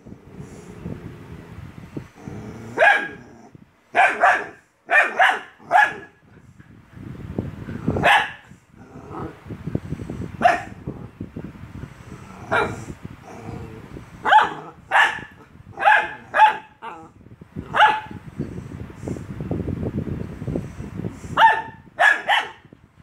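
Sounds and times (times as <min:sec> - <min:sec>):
small dog barking: 0:02.8 - 0:03.2, 0:03.9 - 0:06.2, 0:08.0 - 0:08.4, 0:10.4 - 0:10.8, 0:12.5 - 0:12.8, 0:14.2 - 0:17.0, 0:17.7 - 0:18.2, 0:21.4 - 0:22.6.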